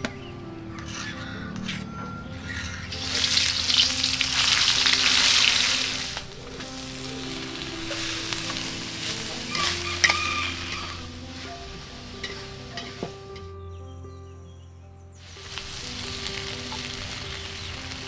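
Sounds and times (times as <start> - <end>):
paste sizzling in hot oil: 2.9 - 13.1, 15.2 - 18.0.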